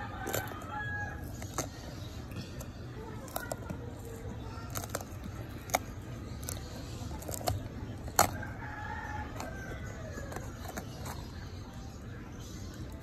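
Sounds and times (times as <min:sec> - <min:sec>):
pepper flesh snapping: 0:04.7 - 0:11.2.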